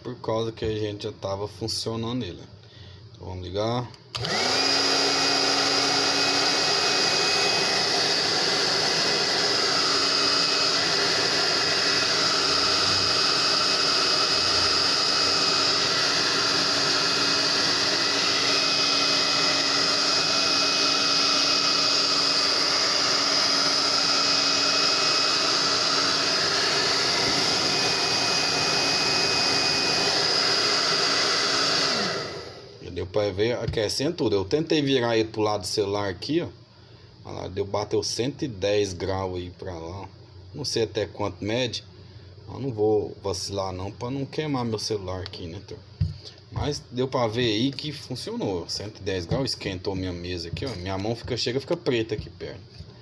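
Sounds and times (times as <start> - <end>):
hair dryer running: 4.1 - 32.8.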